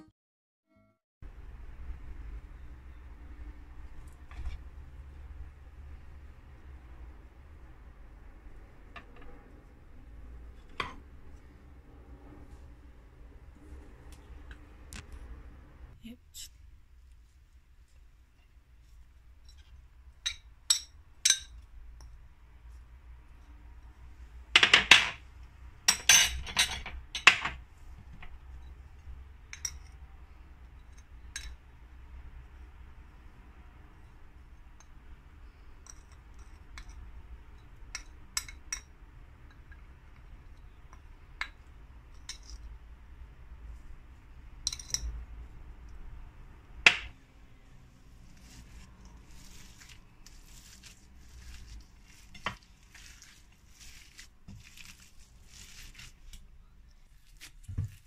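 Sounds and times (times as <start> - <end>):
spoon clinking on dishes: 20.2 - 21.6.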